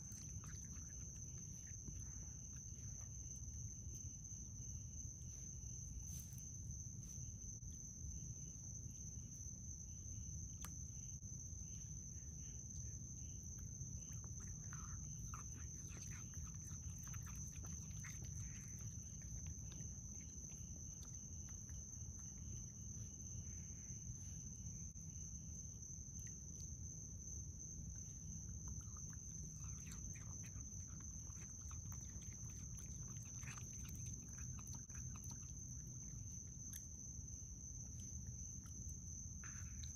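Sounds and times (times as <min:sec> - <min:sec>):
raccoon chewing: 0:00.0 - 0:07.2, 0:13.4 - 0:39.9.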